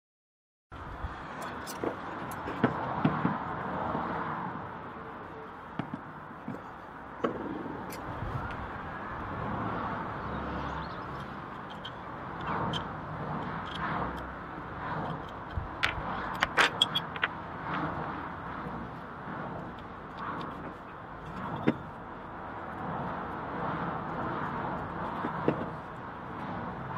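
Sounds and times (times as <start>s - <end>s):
steady background noise: 0.8s - 26.9s
sharp clicks and knocks: 11.0s - 18.8s, 19.5s - 22.0s, 24.8s - 25.9s.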